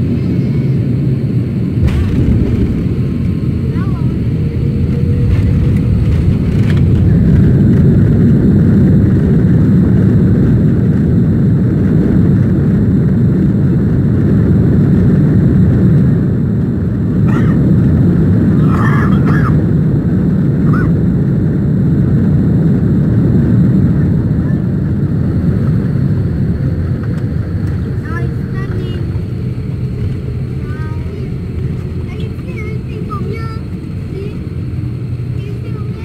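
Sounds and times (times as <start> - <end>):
airliner engines rumbling: 0.0 - 36.0
wheels rolling on tarmac: 2.4 - 17.1, 22.8 - 36.0.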